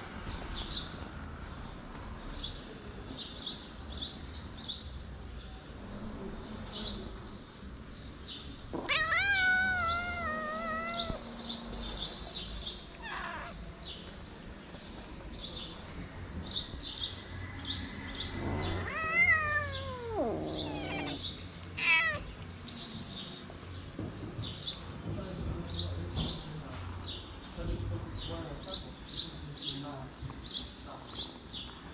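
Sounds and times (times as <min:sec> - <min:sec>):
small birds chirping: 0:00.2 - 0:31.9
cat meowing: 0:08.8 - 0:11.4, 0:12.9 - 0:13.6, 0:18.4 - 0:22.3.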